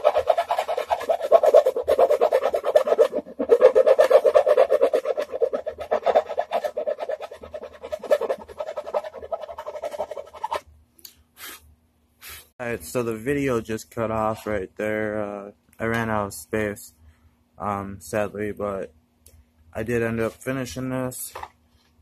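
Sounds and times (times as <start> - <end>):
hand file rasping on wood: 0.0 - 10.6.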